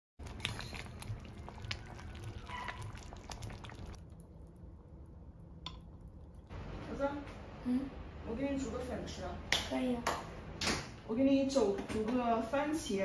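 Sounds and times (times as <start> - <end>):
soup bubbling in a pot: 0.2 - 6.5.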